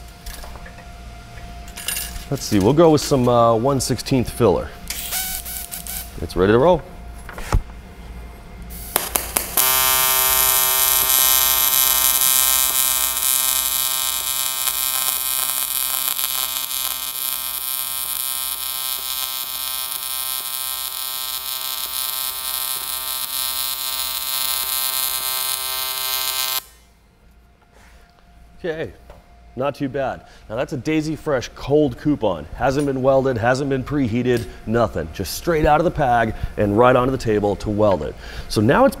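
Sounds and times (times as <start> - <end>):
welding arc buzz: 4.8 - 6.5, 8.6 - 27.0
welding arc crackles: 5.0 - 6.1, 8.7 - 26.8.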